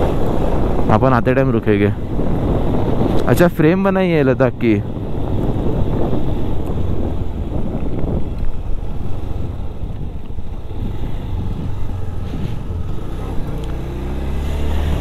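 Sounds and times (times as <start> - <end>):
wind buffeting microphone: 0.0 - 15.0
motorcycle engine running: 4.8 - 15.0.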